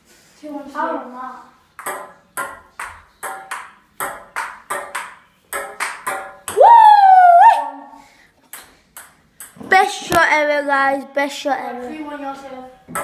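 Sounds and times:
table tennis ball hits: 0:01.8 - 0:06.7, 0:08.5 - 0:10.3
person yelling high-pitched: 0:06.6 - 0:08.0.

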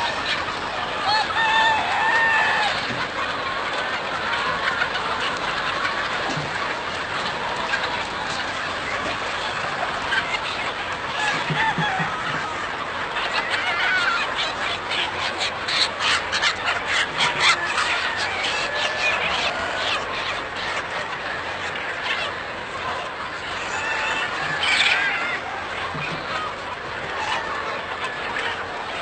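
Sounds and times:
chickens clucking: 0:00.0 - 0:29.0.

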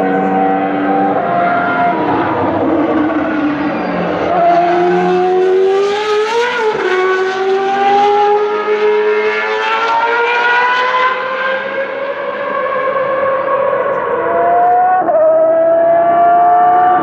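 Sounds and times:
race car engine at high revs: 0:00.0 - 0:17.0.

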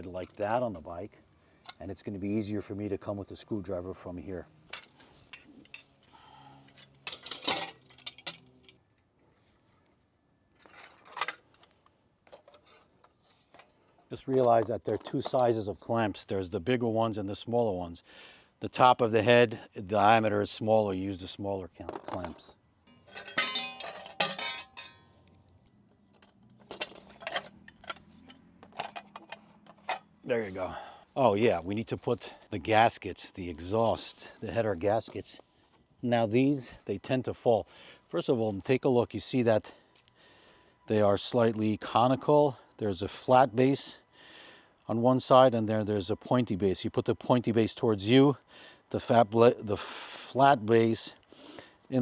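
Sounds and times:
metal exhaust pipes clinking: 0:00.0 - 0:02.4, 0:04.7 - 0:08.8, 0:22.9 - 0:25.3, 0:26.1 - 0:30.9
metal heat shield clinking: 0:06.7 - 0:08.7, 0:22.9 - 0:25.1.

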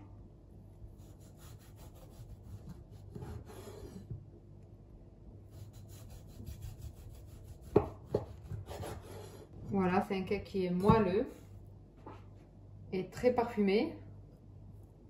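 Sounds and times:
knife sawing through cake: 0:01.0 - 0:04.1, 0:05.5 - 0:09.6
knife knocking on wooden board: 0:07.7 - 0:08.4.

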